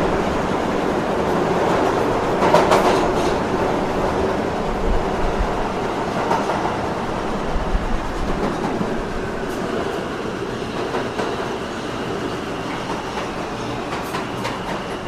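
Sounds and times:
subway train rolling: 0.0s - 15.0s.

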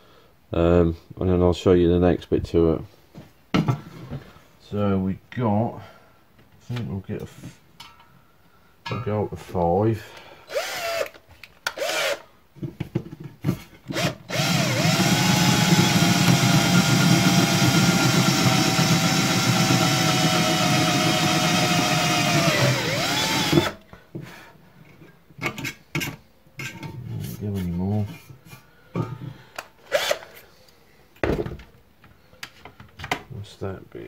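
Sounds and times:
cordless drill whining: 10.5s - 12.2s, 13.9s - 23.8s, 29.9s - 30.4s.

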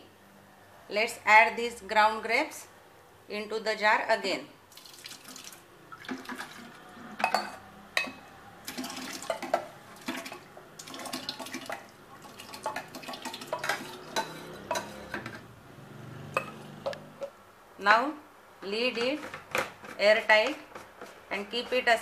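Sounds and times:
metal spoon scraping steel jar: 13.5s - 15.4s.

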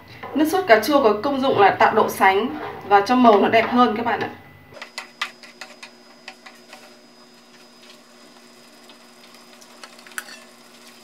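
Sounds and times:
sauce simmering in a frying pan: 5.0s - 11.0s.

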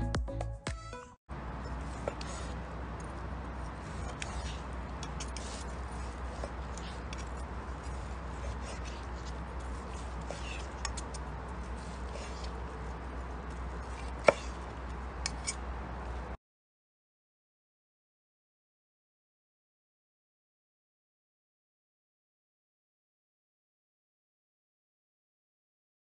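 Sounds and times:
knife and fork clicking on board: 6.4s - 11.3s, 15.2s - 15.6s.

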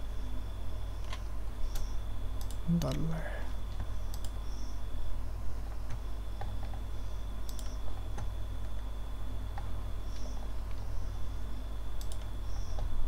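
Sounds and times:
steady low hum: 0.0s - 13.0s
keyboard and mouse clicks: 3.8s - 4.4s, 7.4s - 8.3s, 12.0s - 12.9s.

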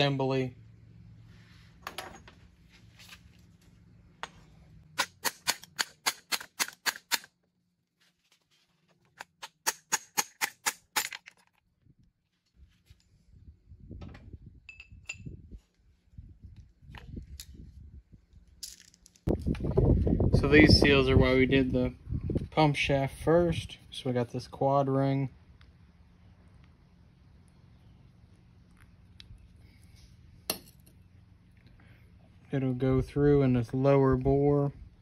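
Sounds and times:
metal parts scuffing and knocking: 1.7s - 4.6s.

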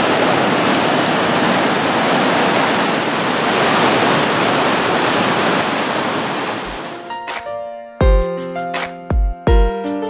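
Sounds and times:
turbulent water rushing: 0.0s - 7.0s.

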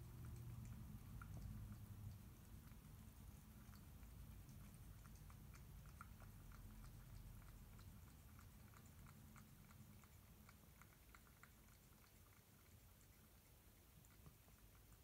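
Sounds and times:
cat chewing food: 0.0s - 15.0s.

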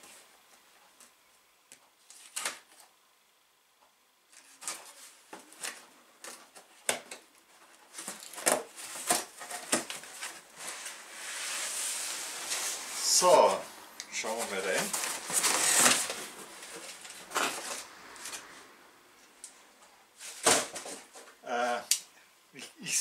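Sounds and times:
cardboard rustling: 4.3s - 18.7s, 20.2s - 21.4s.

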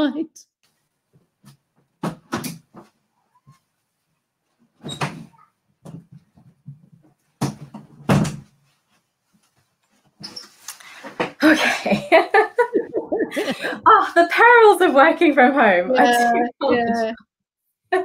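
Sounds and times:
door opening and shutting: 4.8s - 6.1s.

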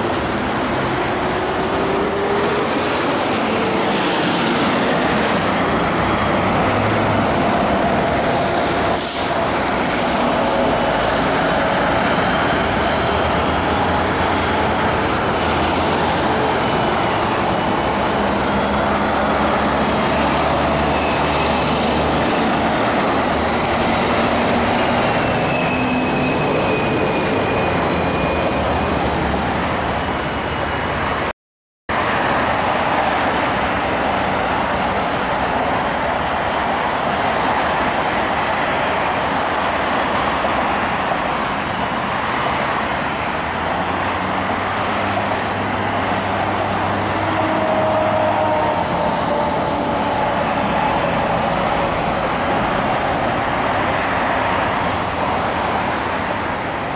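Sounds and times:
road traffic noise: 0.0s - 56.9s.

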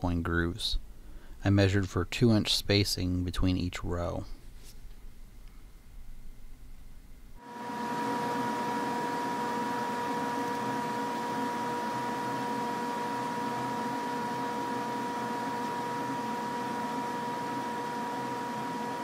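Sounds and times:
machine humming with whine: 5.2s - 19.0s.

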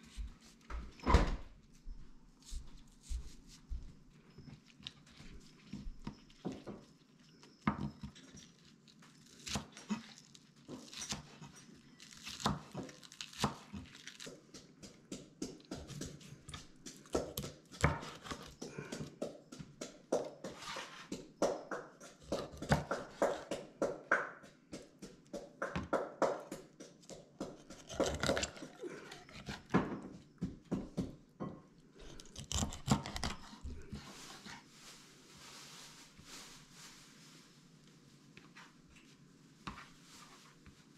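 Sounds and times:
knife crunching through fish: 27.8s - 29.7s, 32.1s - 33.6s.

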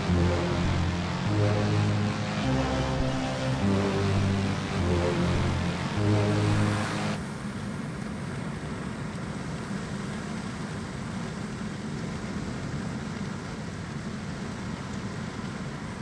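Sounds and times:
music: 0.0s - 7.2s.

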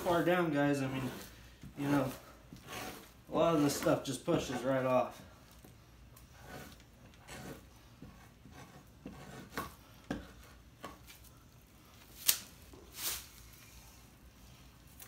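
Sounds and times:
knife scraping pelt: 6.2s - 7.7s.

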